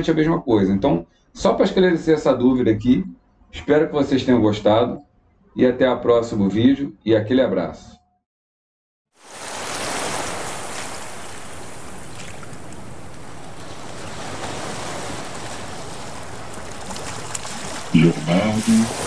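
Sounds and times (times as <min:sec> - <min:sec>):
ocean waves surf: 0:09.2 - 0:19.0.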